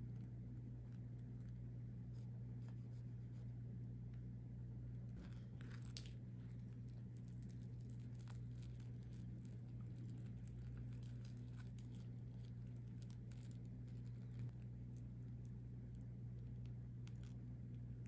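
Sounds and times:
steady low hum: 0.0 - 18.0
bread tearing: 5.2 - 18.0
fried bread crust crackling: 5.2 - 18.0.

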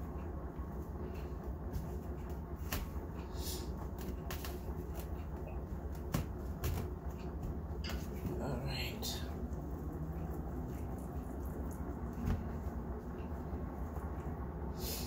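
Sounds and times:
steady low hum: 0.0 - 15.0
dry rustling and patting: 0.7 - 8.6, 10.4 - 13.4.

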